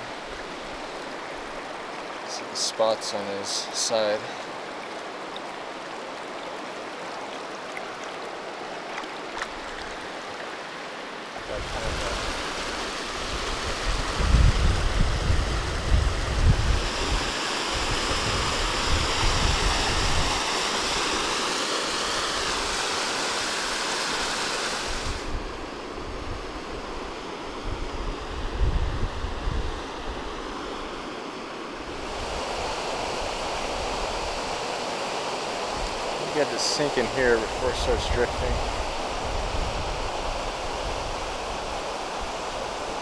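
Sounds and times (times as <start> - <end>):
river rushing over boulders: 0.0 - 43.0
wind buffeting microphone: 11.5 - 12.6, 13.2 - 20.4, 24.9 - 30.4, 35.8 - 42.8.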